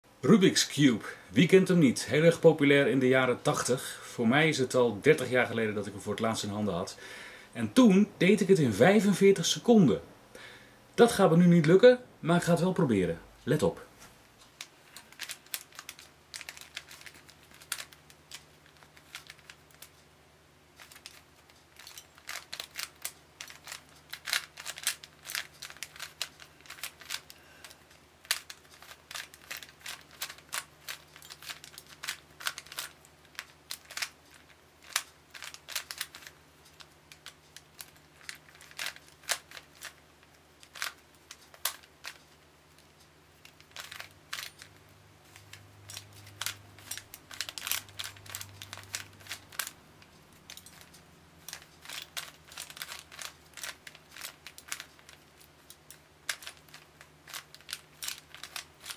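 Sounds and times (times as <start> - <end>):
plastic puzzle cube clicking: 15.1 - 19.9, 21.8 - 27.3, 28.2 - 42.4, 43.4 - 44.7, 45.3 - 49.8, 50.4 - 58.9.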